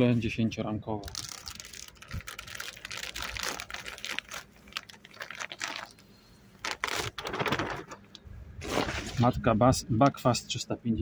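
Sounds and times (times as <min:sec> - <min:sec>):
plastic sheet crinkling: 0:01.0 - 0:08.0, 0:08.6 - 0:09.3.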